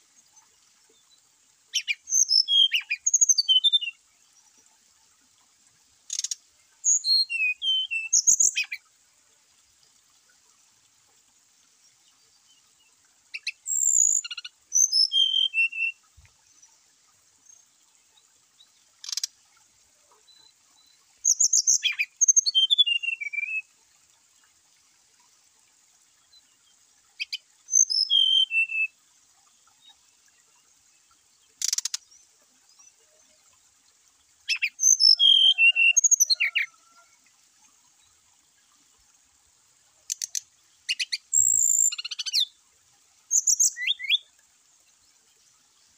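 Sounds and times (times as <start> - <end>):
bird singing whistled notes: 1.7 - 4.0, 6.1 - 8.8, 13.4 - 16.0, 20.3 - 23.7, 27.2 - 29.0, 34.4 - 36.7, 40.1 - 42.5, 43.3 - 44.3.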